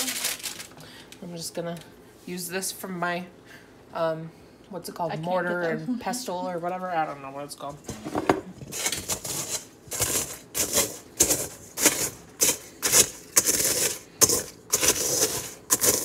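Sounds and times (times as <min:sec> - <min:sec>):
crackers crushed in metal bowl: 0:00.0 - 0:00.8, 0:08.7 - 0:16.0.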